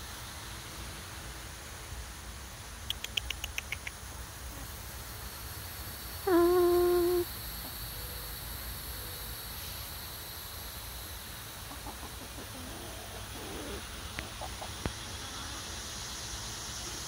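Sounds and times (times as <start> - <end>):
steady hiss: 0.0 - 17.0
chickens clucking softly: 11.6 - 16.0.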